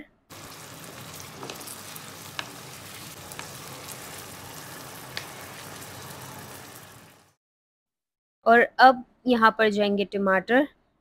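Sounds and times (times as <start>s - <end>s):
chicken sizzling in hot oil: 0.3s - 7.4s.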